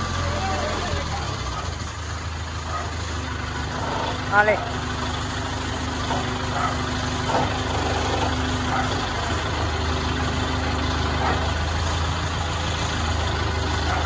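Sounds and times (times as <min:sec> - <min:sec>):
crane engine running: 0:00.0 - 0:14.0.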